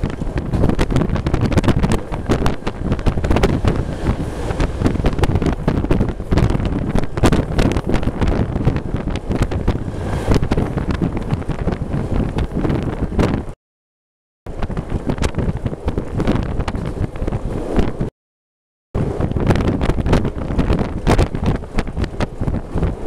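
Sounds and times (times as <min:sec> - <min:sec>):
train running noise: 0:00.0 - 0:13.6
wind buffeting microphone: 0:00.0 - 0:13.6, 0:14.5 - 0:18.1, 0:19.0 - 0:23.0.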